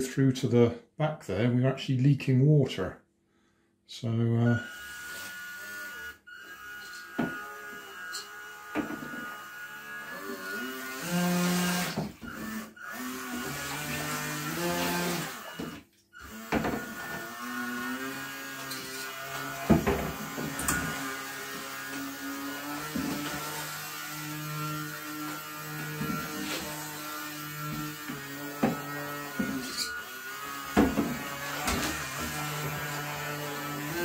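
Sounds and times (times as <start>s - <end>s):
small electric motor whining: 4.4s - 34.0s.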